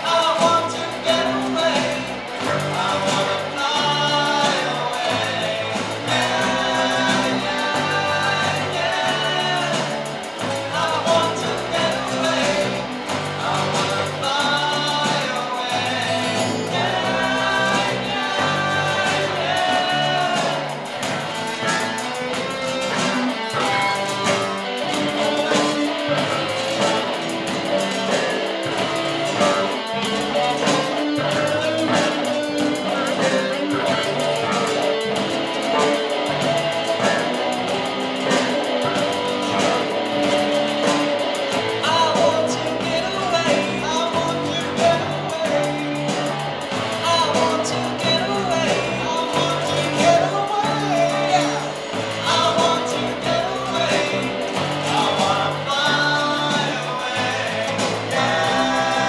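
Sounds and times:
acoustic guitars strumming: 0.0 - 59.0
bass guitar: 0.0 - 59.0
electric guitar: 0.0 - 59.0
young male voices singing: 0.0 - 59.0.

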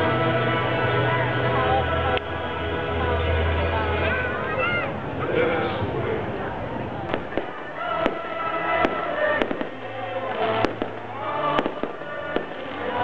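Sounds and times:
music playing: 0.0 - 5.1, 7.1 - 13.0
fireworks bursting: 7.0 - 13.0.

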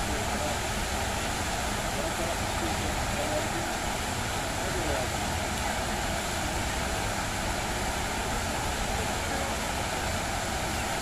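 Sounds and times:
fountain water splashing: 0.0 - 11.0.

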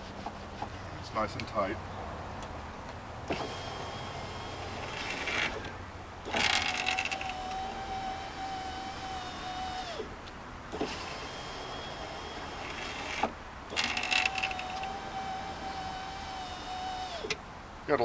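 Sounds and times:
power window motor whine: 3.3 - 10.1, 10.7 - 17.4.

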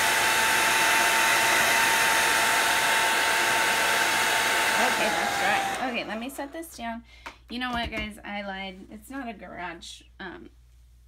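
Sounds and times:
hair dryer blowing with whine: 0.0 - 6.5.

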